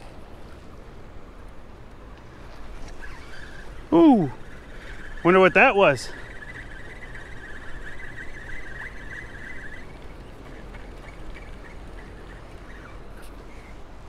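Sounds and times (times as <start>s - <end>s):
water rushing from spillway: 3.9s - 4.4s.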